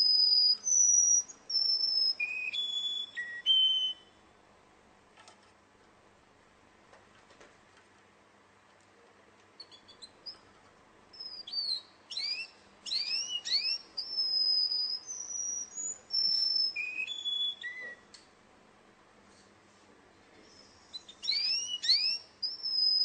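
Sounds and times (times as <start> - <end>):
canary singing: 0.0 - 4.2, 9.5 - 10.5, 11.1 - 18.1, 20.5 - 23.0.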